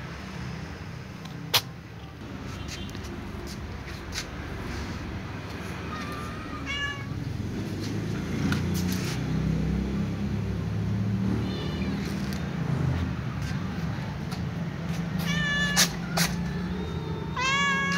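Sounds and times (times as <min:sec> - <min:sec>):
cat meowing: 0:05.8 - 0:07.3, 0:15.2 - 0:16.0, 0:17.3 - 0:17.9.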